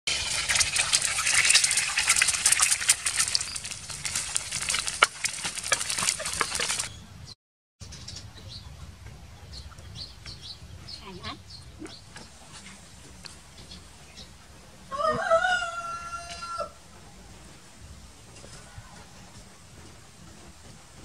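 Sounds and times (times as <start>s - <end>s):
eggs sizzling in hot oil: 0.1s - 6.9s.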